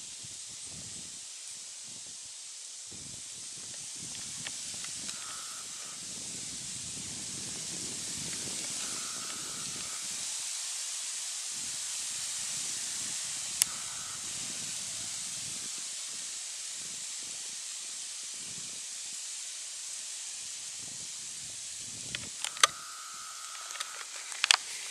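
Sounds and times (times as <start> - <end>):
high-pitched hiss: 0.0 - 24.9
faint whine: 4.1 - 10.3
sharp click: 22.1 - 22.8.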